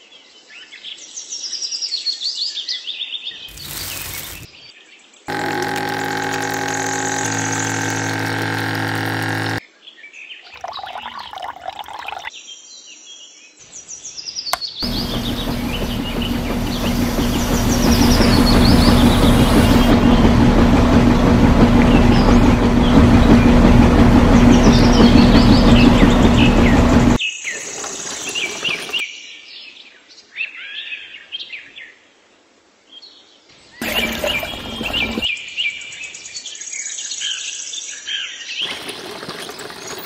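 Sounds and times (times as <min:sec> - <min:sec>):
miniature concrete mixer churning: 0:03.5 - 0:04.5, 0:05.3 - 0:09.6, 0:10.6 - 0:12.3, 0:14.8 - 0:29.0, 0:33.8 - 0:35.3, 0:38.6 - 0:40.0
small water pump motor humming: 0:03.5 - 0:04.5, 0:05.3 - 0:09.6, 0:10.6 - 0:12.3, 0:14.8 - 0:29.0, 0:33.8 - 0:35.3, 0:38.6 - 0:40.0
water pouring: 0:03.5 - 0:04.5, 0:10.5 - 0:12.3, 0:27.5 - 0:29.0, 0:33.8 - 0:35.3, 0:38.6 - 0:40.0.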